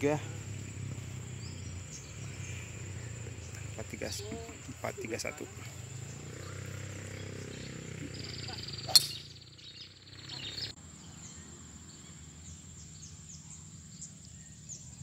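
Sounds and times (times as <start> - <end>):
high insect buzz: 0.0 - 14.7
golf driver striking ball: 8.8 - 9.3.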